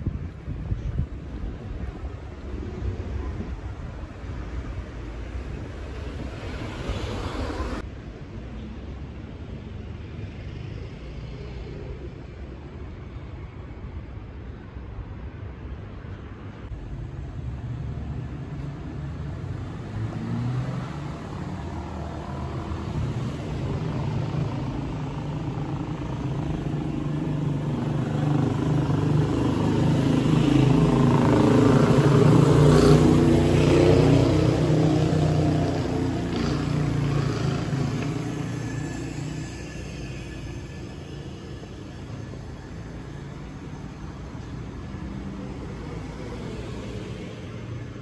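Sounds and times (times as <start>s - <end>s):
passing vehicle engine: 16.7s - 48.0s.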